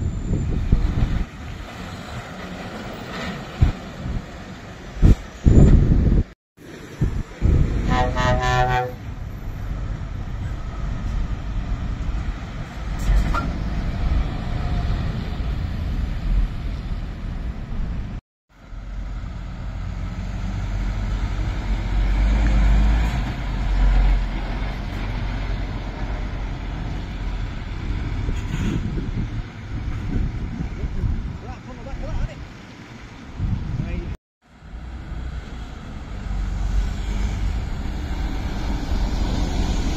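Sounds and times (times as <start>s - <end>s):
lorry diesel engines passing: 0.0s - 39.9s
tyre and road noise: 0.0s - 39.9s.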